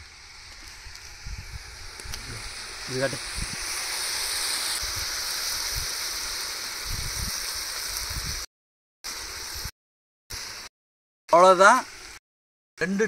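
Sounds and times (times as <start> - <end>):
curry sizzling in a pan: 0.0 - 8.5.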